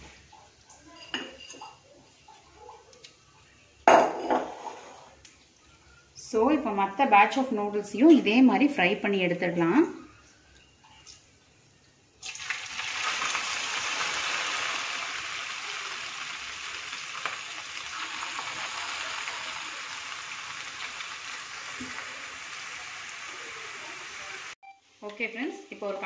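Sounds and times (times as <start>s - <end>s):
noodles sizzling in hot oil: 12.2s - 24.6s.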